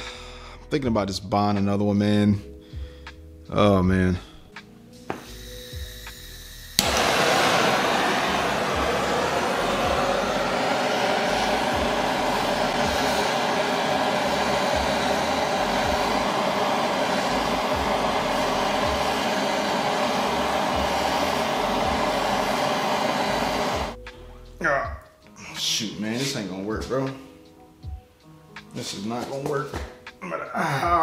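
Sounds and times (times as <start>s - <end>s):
propane torch hissing: 5.0s - 24.6s.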